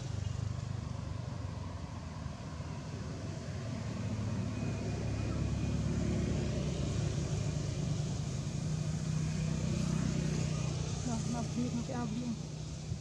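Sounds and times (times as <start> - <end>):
motor engine humming: 10.6 - 13.0.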